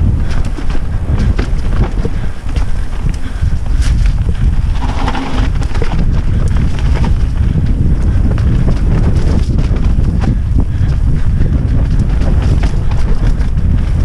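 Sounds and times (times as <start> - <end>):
tyres rolling over dirt: 0.0 - 10.5
bike knocks and rattles: 0.0 - 14.0
wind buffeting microphone: 0.0 - 14.0.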